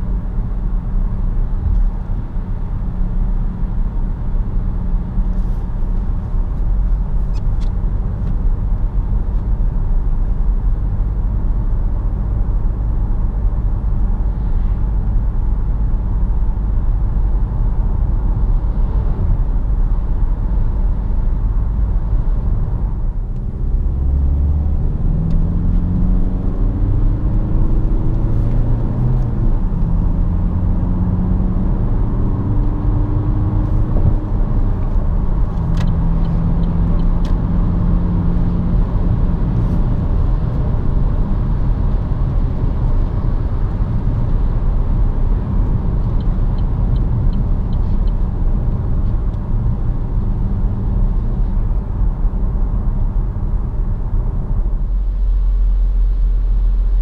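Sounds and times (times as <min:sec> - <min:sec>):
diesel engine accelerating: 0:10.8 - 0:57.0
tyre and road rumble: 0:17.4 - 0:57.0.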